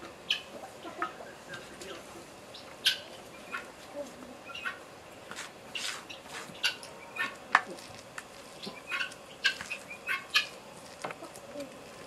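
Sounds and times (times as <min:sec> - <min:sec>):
birds chirping: 0:00.2 - 0:07.5, 0:08.5 - 0:11.6.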